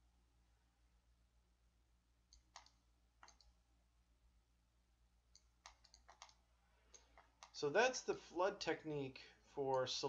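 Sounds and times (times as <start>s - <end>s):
faint low hum: 0.0s - 10.0s
computer mouse clicks: 2.3s - 3.6s, 5.3s - 7.6s.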